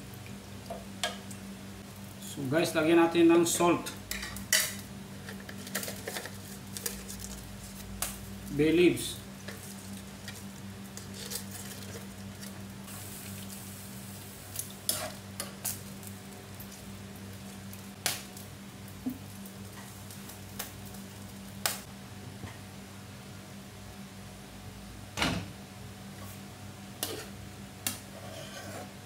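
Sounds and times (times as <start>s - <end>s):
steady low hum: 0.0s - 29.0s
metal ladle stirring in pan: 14.9s - 15.6s, 28.1s - 29.0s.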